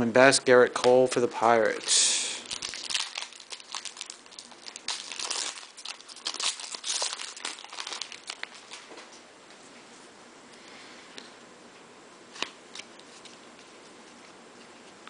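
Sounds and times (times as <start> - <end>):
foil wrapper crinkling and tearing: 1.4 - 8.9.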